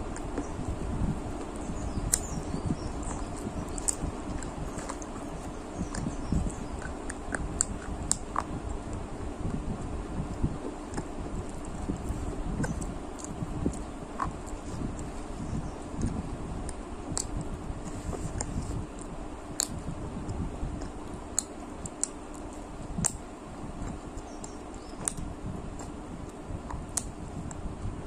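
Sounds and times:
low rumbling background noise: 0.0 - 28.0
chewing: 1.4 - 23.2, 23.8 - 27.6
wet mouth clicks: 3.0 - 8.6, 10.9 - 15.1, 18.4 - 23.2, 23.8 - 26.0, 26.7 - 27.1.

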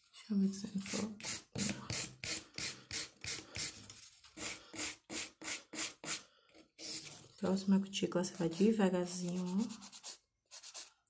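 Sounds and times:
nail file rasping: 8.4 - 10.9.

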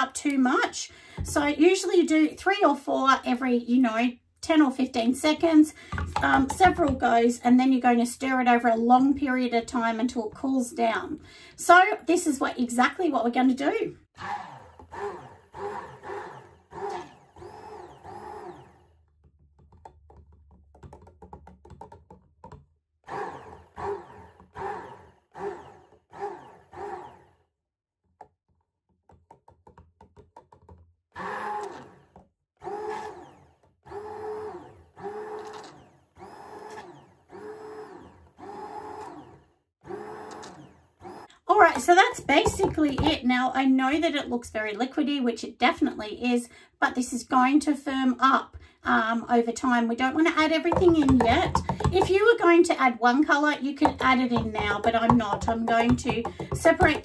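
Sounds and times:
stick blender motor whine: 14.2 - 19.0, 23.1 - 27.4, 31.2 - 43.1, 50.7 - 52.1.

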